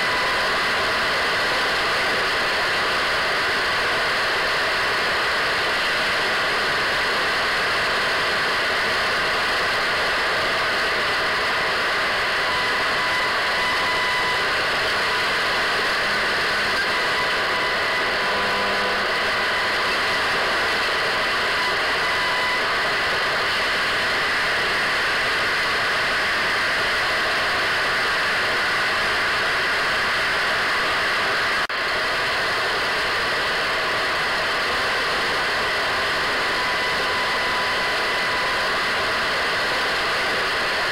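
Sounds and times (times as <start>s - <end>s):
radio static hiss: 9.2s - 24.8s.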